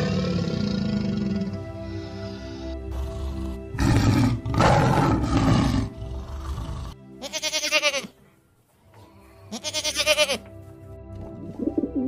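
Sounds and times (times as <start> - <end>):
tiger roaring: 0.0 - 7.0
background music: 0.0 - 12.0
goat bleating: 7.2 - 8.2, 9.5 - 10.5.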